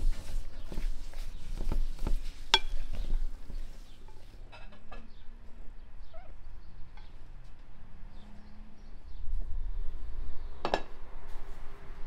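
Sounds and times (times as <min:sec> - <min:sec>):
faint bird chirps: 0:06.0 - 0:07.2.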